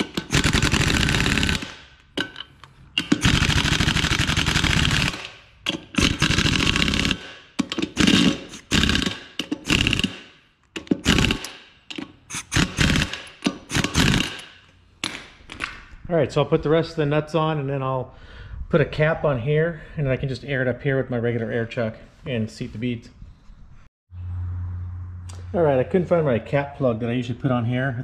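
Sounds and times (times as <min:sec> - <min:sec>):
impact wrench hammering: 0:00.0 - 0:15.4.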